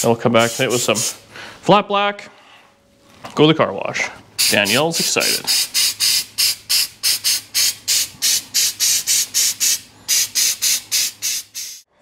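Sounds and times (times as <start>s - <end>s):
aerosol spray hisses: 0.4s - 1.2s, 4.4s - 11.9s.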